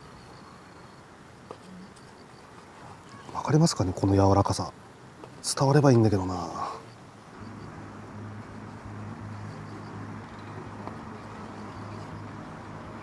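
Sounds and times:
faint outdoor hiss: 0.0s - 13.0s
low engine-like hum: 6.3s - 13.0s.

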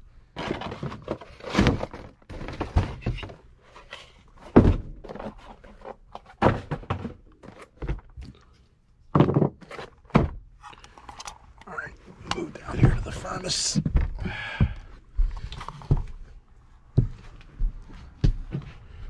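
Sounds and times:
boxes thudding when set down: 0.4s - 3.4s, 4.4s - 8.2s, 9.1s - 10.4s.

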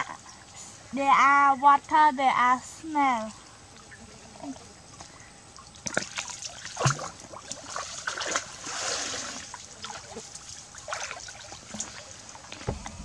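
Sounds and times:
water splashing and sloshing: 3.0s - 13.0s.

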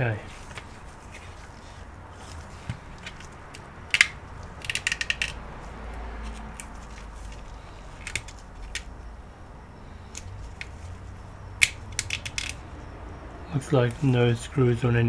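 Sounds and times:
low steady hum: 0.0s - 15.0s
plastic casing clicks: 3.9s - 5.4s, 11.6s - 12.6s.

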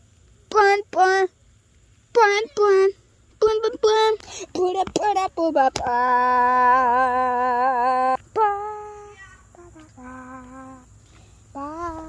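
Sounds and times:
child singing: 2.2s - 10.9s, 11.5s - 12.0s.

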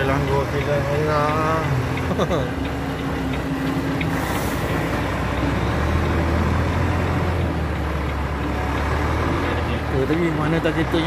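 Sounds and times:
truck diesel engine: 0.0s - 11.0s.

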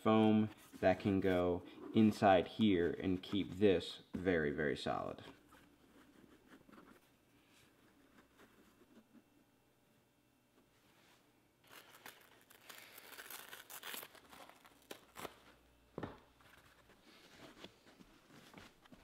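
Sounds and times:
foam tearing: 11.6s - 15.5s.

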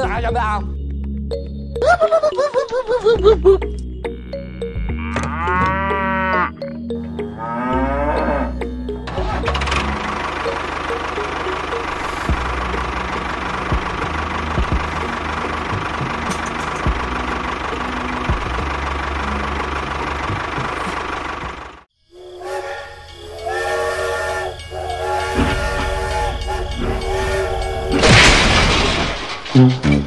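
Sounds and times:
toy tractor engine: 9.0s - 28.0s
toy train whistle: 22.1s - 28.0s.

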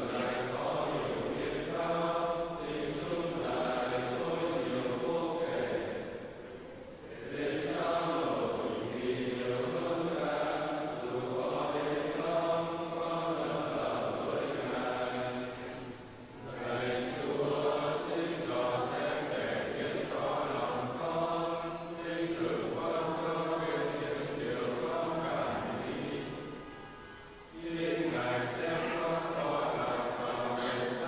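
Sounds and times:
congregation chanting in unison: 0.0s - 31.0s.

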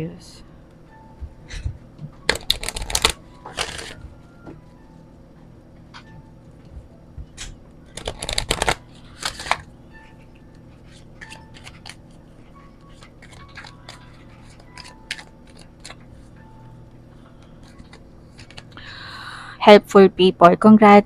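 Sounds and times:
card clicks: 2.3s - 4.0s, 7.4s - 9.7s, 10.9s - 12.0s, 12.8s - 16.0s, 17.6s - 18.8s
cards riffle-shuffled: 2.3s - 4.0s, 7.9s - 9.7s, 10.8s - 12.1s, 12.8s - 16.1s, 17.6s - 18.8s.

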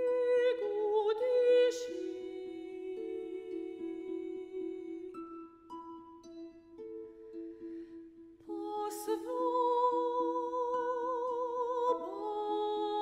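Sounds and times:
soprano singing with vibrato: 0.0s - 5.7s, 8.4s - 13.0s.

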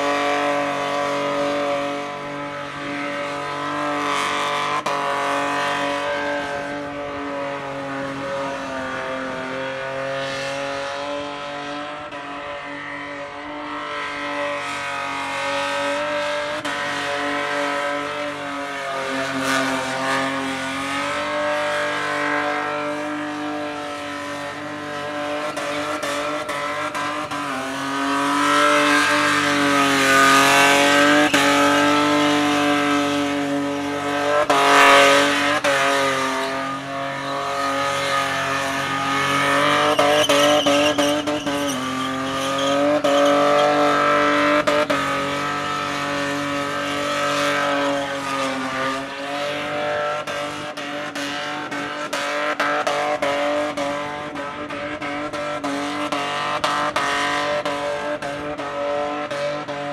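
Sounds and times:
car engine revving: 0.0s - 59.9s
tyres squealing: 39.3s - 44.0s.

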